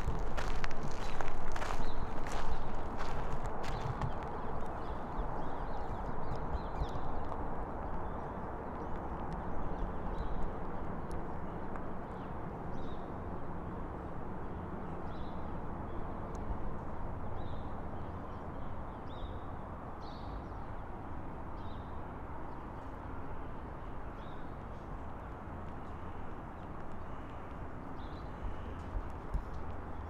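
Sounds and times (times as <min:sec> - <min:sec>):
footsteps crunching on gravel: 0:00.0 - 0:04.9
steady low rumble: 0:00.0 - 0:13.6.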